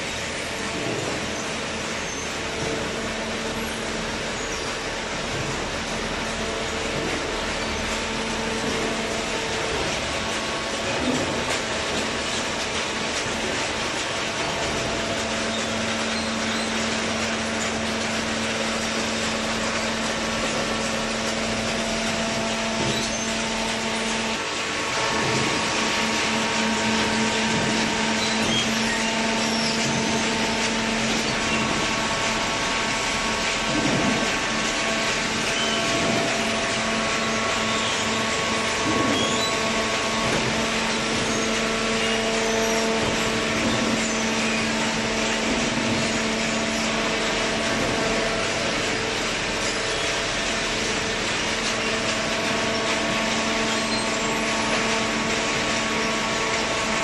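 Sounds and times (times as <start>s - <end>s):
electric motor and pump humming: 0.0s - 57.0s.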